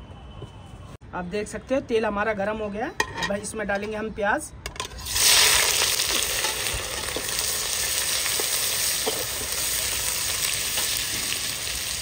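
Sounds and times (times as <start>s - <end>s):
onions sizzling in oil: 5.0s - 12.0s.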